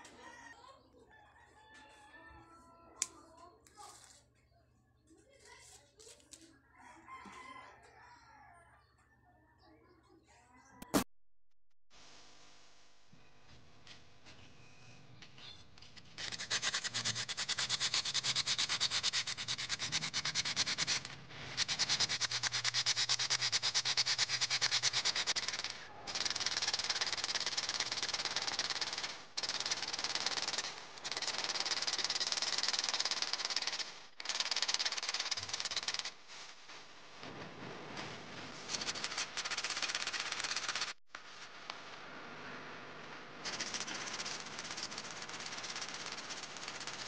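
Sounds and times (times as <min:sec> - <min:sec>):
sandpaper scraping metal: 0:15.9 - 0:26.3.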